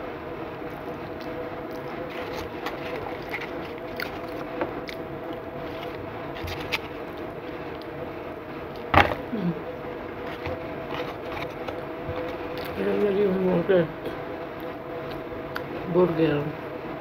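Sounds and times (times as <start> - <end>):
steady background hum: 0.0 - 17.0
person chewing food: 1.1 - 8.0, 10.2 - 12.8.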